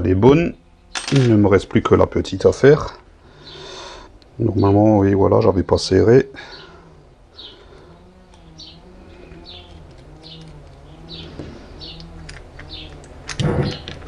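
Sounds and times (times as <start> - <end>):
tools clattering: 0.9 - 1.4
pigeon cooing: 6.4 - 14.0
small bird chirping: 6.5 - 14.0.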